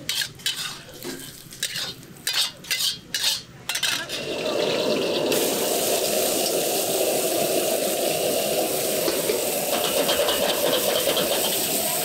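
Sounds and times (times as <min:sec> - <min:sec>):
metal spatula in wok: 0:00.0 - 0:04.3, 0:09.1 - 0:12.0
vegetables sizzling in wok: 0:00.0 - 0:12.0.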